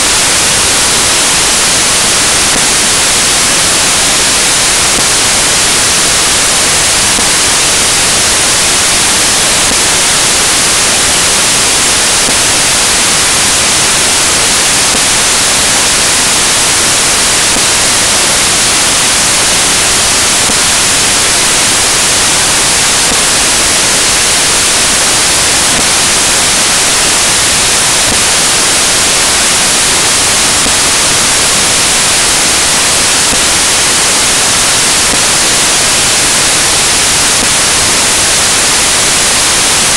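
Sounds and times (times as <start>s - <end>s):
loud static hiss: 0.0s - 39.9s.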